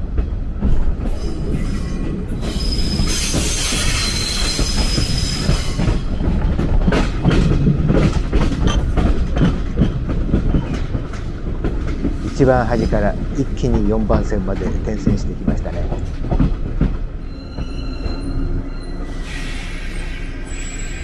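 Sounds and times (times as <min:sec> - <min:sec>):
train rumble: 0:00.0 - 0:21.0
wheel flanges squealing: 0:01.2 - 0:06.2, 0:17.2 - 0:21.0
wheels clacking over rail joints: 0:02.4 - 0:18.2.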